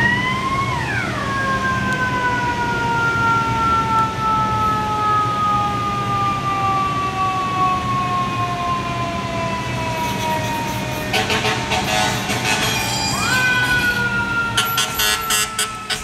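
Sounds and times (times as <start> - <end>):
train propulsion whine: 9.0 - 16.0
train wheels rumbling on track: 9.7 - 16.0.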